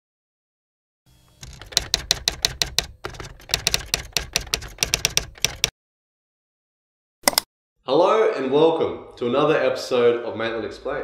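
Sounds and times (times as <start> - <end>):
keyboard typing clicks: 1.4 - 5.7, 7.2 - 7.5.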